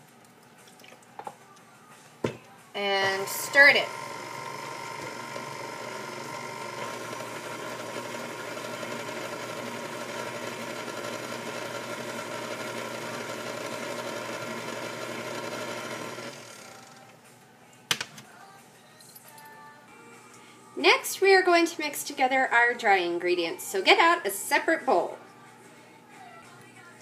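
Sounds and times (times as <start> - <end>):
stand mixer running: 3.0 - 17.1.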